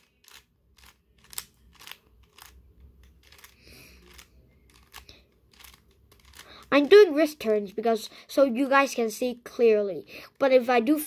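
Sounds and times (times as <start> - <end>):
plastic puzzle cube clicking: 0.0 - 6.6
cube scraping turn: 0.0 - 7.9.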